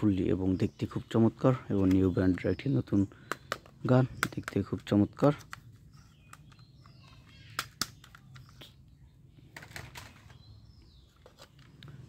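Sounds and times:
faint bird chirps: 0.0s - 12.0s
plastic toy clicks and taps: 3.2s - 8.7s.

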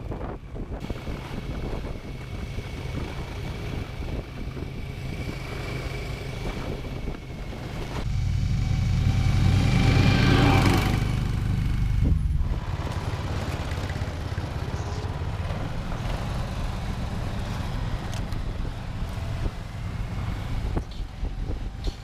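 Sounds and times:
wind rumble on microphone: 0.0s - 13.1s, 17.1s - 22.0s
snow vehicle engines running: 0.0s - 22.0s
snow vehicle driving past: 2.6s - 18.1s.

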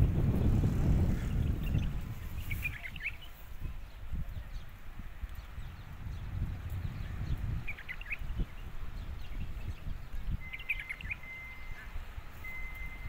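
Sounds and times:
steady low rumble: 0.0s - 10.4s
small birds chirping: 0.0s - 13.0s.

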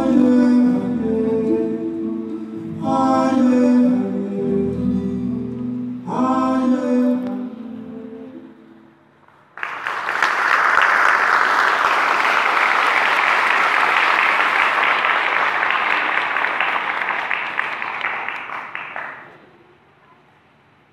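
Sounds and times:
song with singing: 0.0s - 8.9s
audience applauding: 9.6s - 19.4s.

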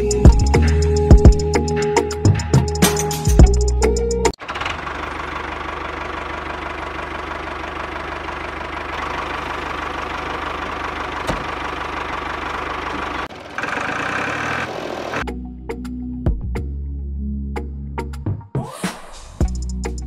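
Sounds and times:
motor running with knocking beat: 12.6s - 15.2s.

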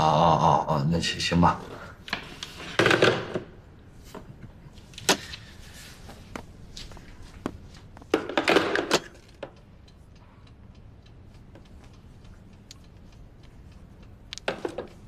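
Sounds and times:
footsteps in a room: 3.8s - 8.2s.

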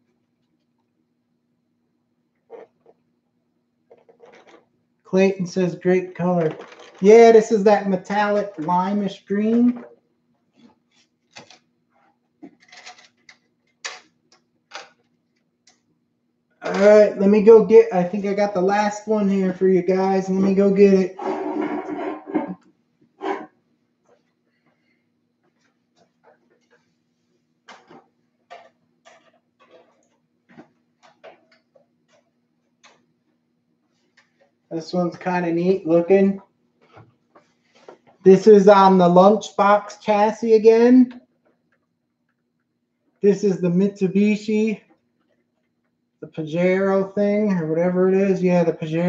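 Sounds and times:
knocks and clicks of handling objects: 27.6s - 33.1s.

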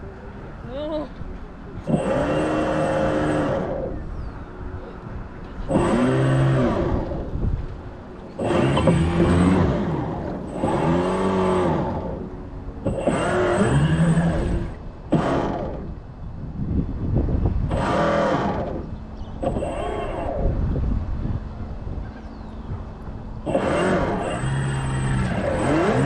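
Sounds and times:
small electric motor whirring: 1.8s - 4.1s, 5.7s - 7.5s, 8.3s - 16.0s, 17.6s - 20.9s, 23.4s - 26.0s
steady low rumble: 2.8s - 25.7s.

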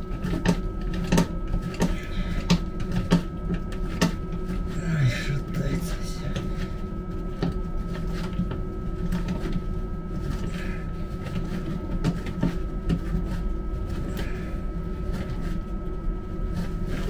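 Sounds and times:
low hum: 0.0s - 17.0s
thin constant whine: 0.0s - 17.0s.

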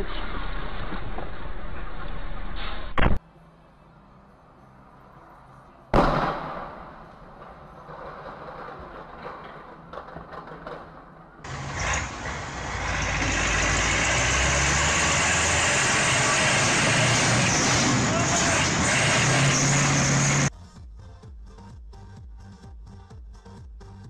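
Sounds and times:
street traffic: 3.2s - 20.5s
loud bang: 6.0s - 7.5s
tractor diesel engine running: 11.5s - 20.5s.

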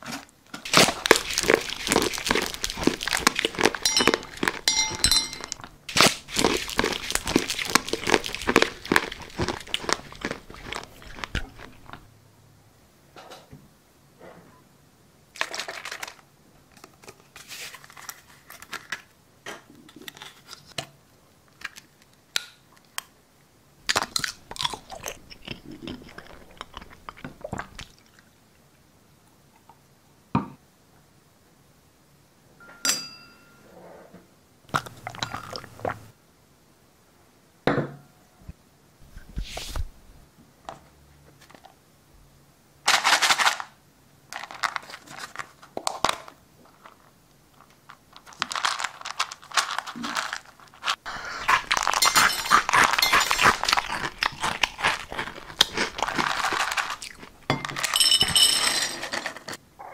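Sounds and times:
crunching and crackling: 0.0s - 12.1s, 23.8s - 28.3s, 44.3s - 59.6s
glass clinking: 3.7s - 5.7s, 32.6s - 33.7s, 51.9s - 53.7s, 57.5s - 59.0s.

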